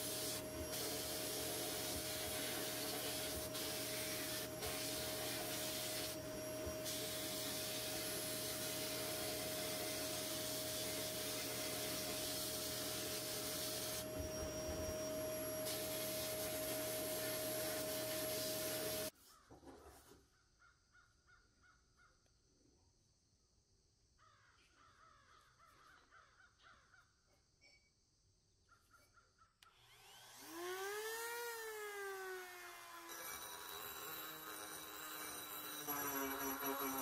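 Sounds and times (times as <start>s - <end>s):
sandblast gun hissing: 0.0s - 19.1s.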